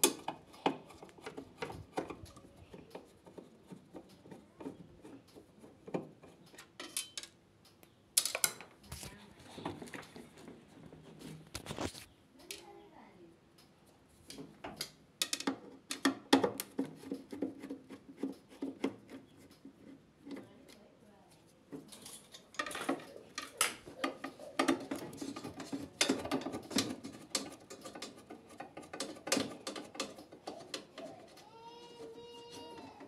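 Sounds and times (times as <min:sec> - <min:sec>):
plastic and metal parts clattering: 0:21.8 - 0:31.4.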